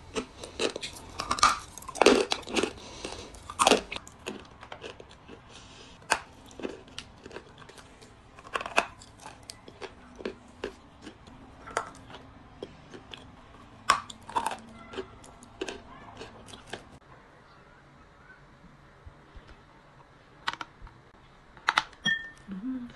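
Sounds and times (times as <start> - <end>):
crunchy clay being chewed: 0.0 - 17.0.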